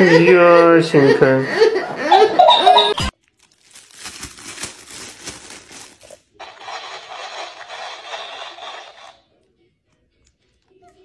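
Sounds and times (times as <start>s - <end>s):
plastic bag crinkling: 3.1s - 9.1s.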